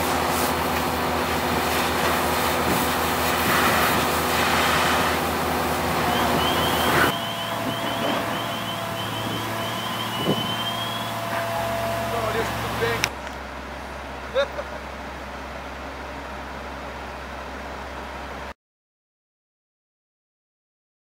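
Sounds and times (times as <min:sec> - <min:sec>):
hose water spray hissing: 0:00.0 - 0:13.0
engine drone: 0:00.0 - 0:18.6
high rising chirps: 0:06.0 - 0:13.0.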